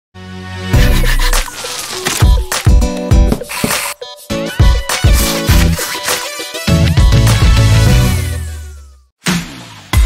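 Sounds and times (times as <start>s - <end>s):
loud upbeat music: 0.8s - 8.6s.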